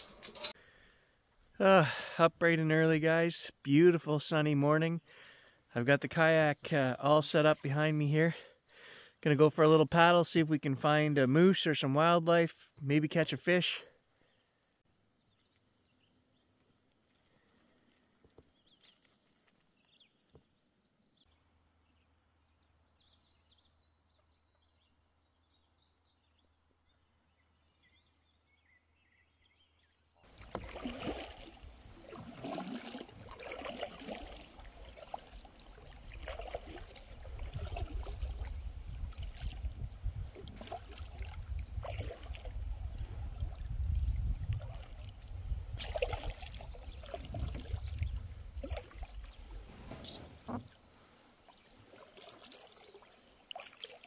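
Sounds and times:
kayak paddle splashing: 30.2 - 54.0
water trickling off paddle: 30.2 - 54.0.

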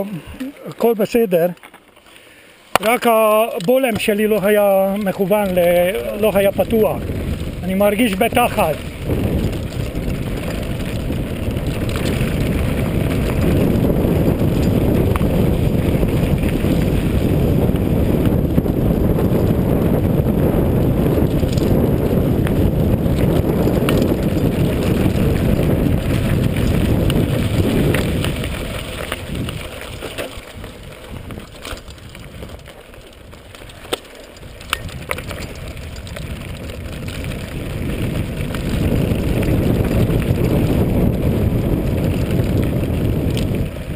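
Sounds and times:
bike tyres crunching on gravel: 0.0 - 43.9
wind rushing over microphone: 2.9 - 43.9.

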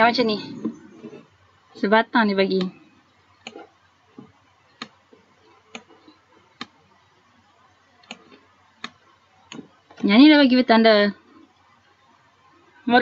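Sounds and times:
computer mouse clicking: 2.6 - 7.0, 8.0 - 10.1.

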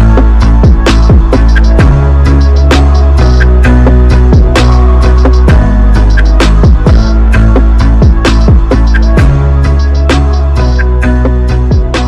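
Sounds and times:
deep sustained bass: 0.0 - 12.0
drum hits: 4.4 - 7.1.

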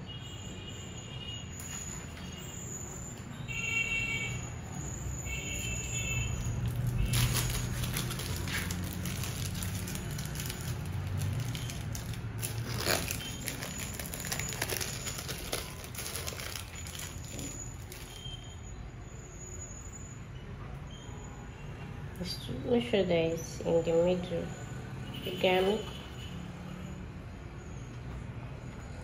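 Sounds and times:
crinkling and crackling: 6.3 - 18.5.

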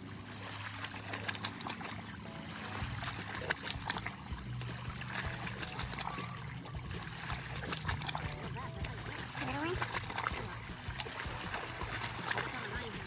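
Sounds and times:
low hum: 0.0 - 13.0
small waves lapping on rocks: 0.0 - 13.0.

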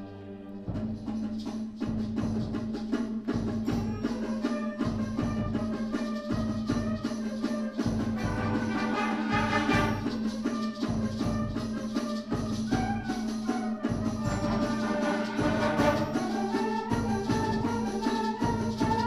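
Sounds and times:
concert band playing: 8.2 - 10.3, 13.8 - 18.9
short percussion strokes: 12.0 - 19.0.

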